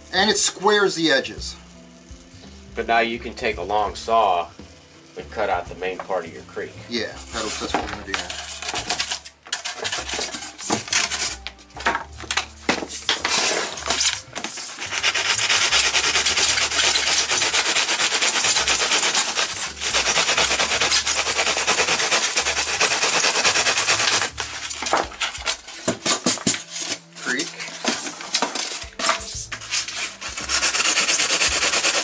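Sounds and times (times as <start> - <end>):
saw cutting foam board: 6.9 - 32.0.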